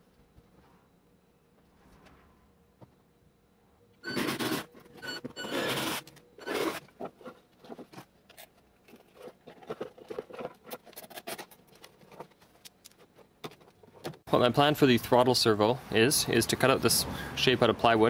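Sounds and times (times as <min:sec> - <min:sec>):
small scratches and clicks: 0:05.6 - 0:14.0.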